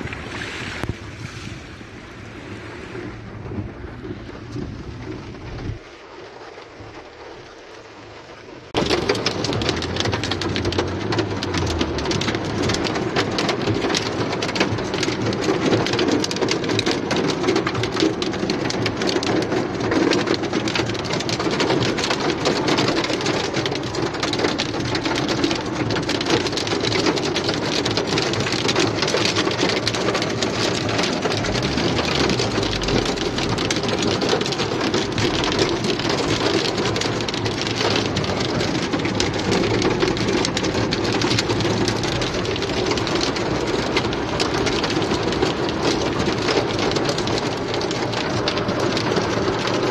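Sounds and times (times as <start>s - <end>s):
heavy rain on car roof: 0.0s - 49.9s.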